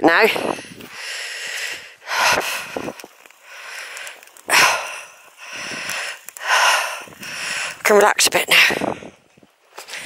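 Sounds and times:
person breathing hard: 0:00.4 - 0:07.8.

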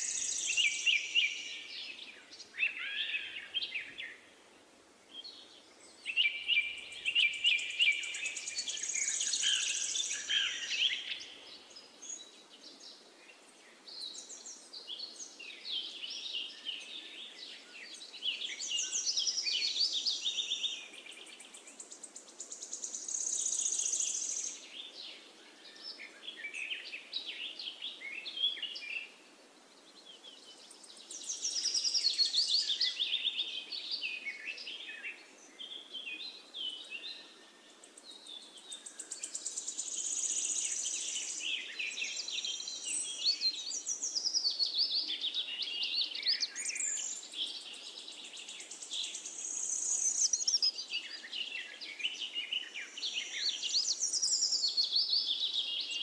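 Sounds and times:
birds chirping and trilling: 0:00.0 - 0:04.3, 0:05.8 - 0:12.8, 0:30.0 - 0:56.0
faint background noise: 0:00.0 - 0:56.0.

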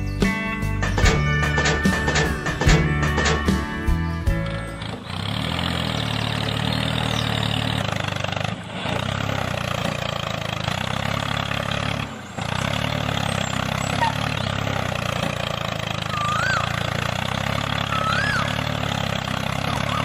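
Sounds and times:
low engine idling: 0:00.0 - 0:20.0.

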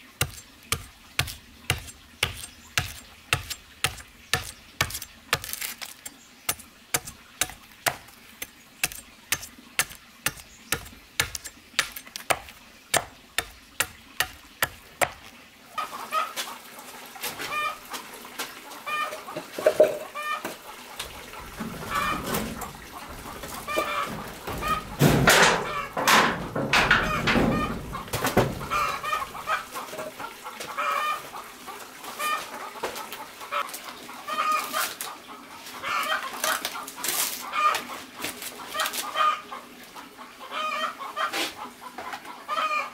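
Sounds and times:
chickens clucking: 0:00.0 - 0:42.9
machete striking bamboo: 0:00.2 - 0:08.1, 0:08.8 - 0:15.2
rustling and handling knocks: 0:21.4 - 0:30.1.

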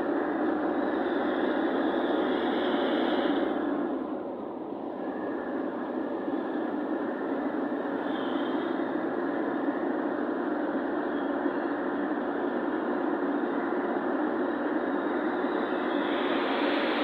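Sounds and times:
vehicle road noise: 0:00.0 - 0:17.0.

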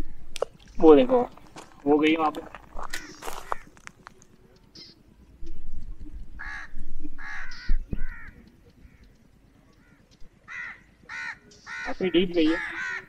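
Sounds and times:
crow cawing: 0:02.8 - 0:03.9, 0:06.4 - 0:13.0.

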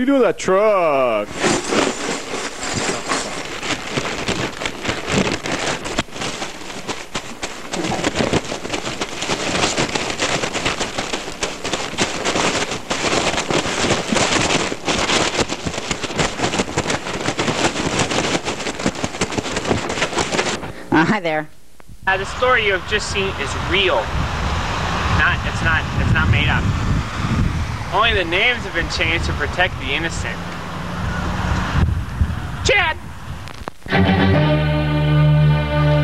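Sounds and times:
fire crackling with small pops: 0:01.3 - 0:20.8, 0:33.3 - 0:33.9.

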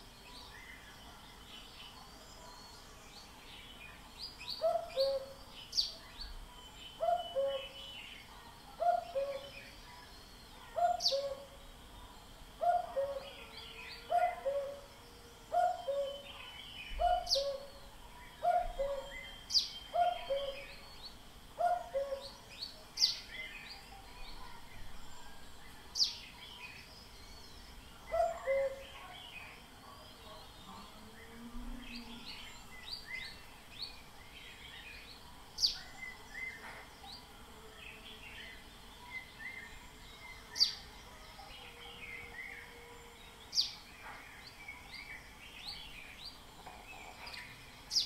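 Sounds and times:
small birds chirping: 0:00.0 - 0:48.0
cuckoo calling: 0:04.6 - 0:05.4, 0:07.0 - 0:07.8, 0:08.8 - 0:09.7, 0:10.6 - 0:21.0, 0:21.6 - 0:22.5, 0:28.1 - 0:29.0.

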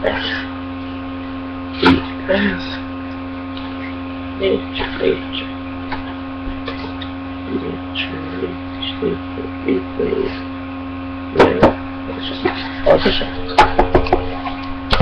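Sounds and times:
mains hum: 0:00.0 - 0:15.0.

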